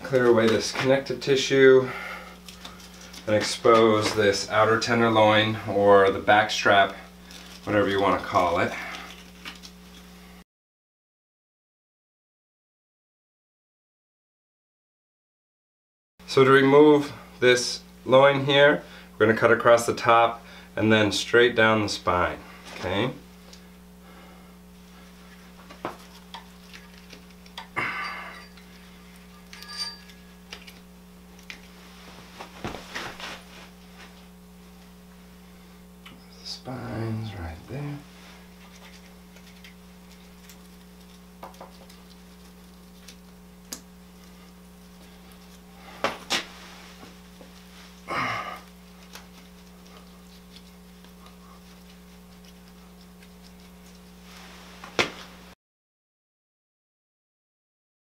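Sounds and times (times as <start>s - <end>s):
low electrical hum: 0.0s - 10.4s, 16.2s - 55.6s
knife scraping on bone: 25.2s - 31.8s, 38.4s - 46.0s, 47.4s - 54.2s.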